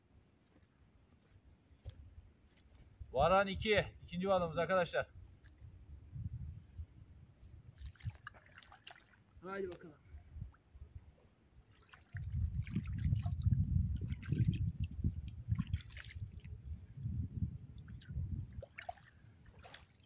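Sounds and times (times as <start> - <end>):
hands splashing in water: 7.8 - 9.8, 11.7 - 16.6, 17.8 - 20.0.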